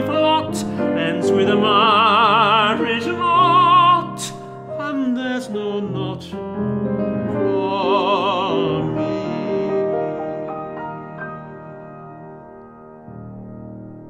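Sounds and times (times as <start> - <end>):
man singing with vibrato: 0.0 - 10.3
piano chords: 0.0 - 14.0.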